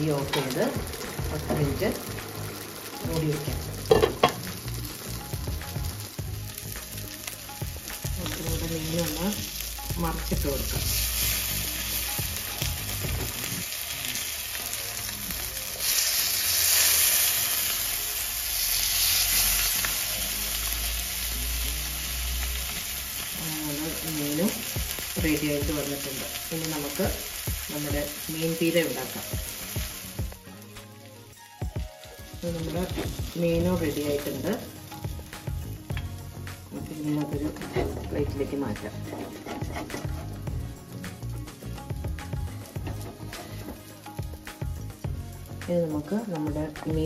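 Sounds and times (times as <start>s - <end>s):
fish frying in hot oil: 0.0s - 30.5s
wooden spatula scraping pan: 37.6s - 40.6s, 42.6s - 43.8s.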